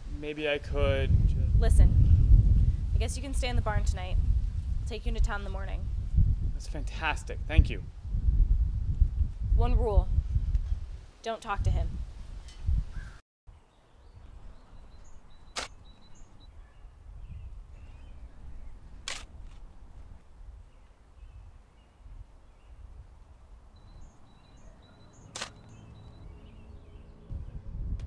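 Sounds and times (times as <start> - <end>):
low wind rumble: 0.0 - 13.2, 13.9 - 28.0
shovel digging into ground: 15.5 - 15.8, 25.3 - 25.7
faint bird chirps: 23.7 - 27.1.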